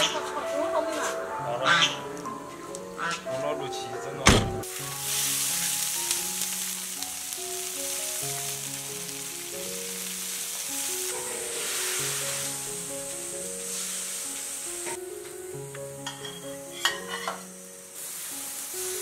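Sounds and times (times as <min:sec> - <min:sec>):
soft background music: 0:00.0 - 0:19.0
sharp thump: 0:04.2 - 0:04.6
vegetables sizzling in a wok: 0:04.6 - 0:19.0.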